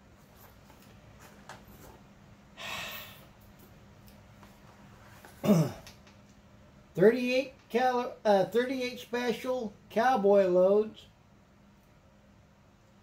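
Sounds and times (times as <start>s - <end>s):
breathy rush of noise: 2.5s - 3.4s.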